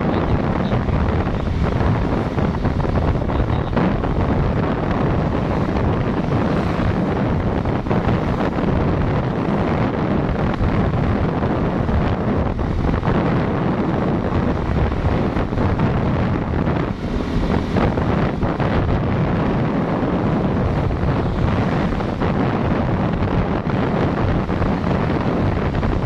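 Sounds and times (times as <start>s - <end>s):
road and vehicle rumble: 0.0s - 26.0s
wind buffeting microphone: 0.0s - 26.0s.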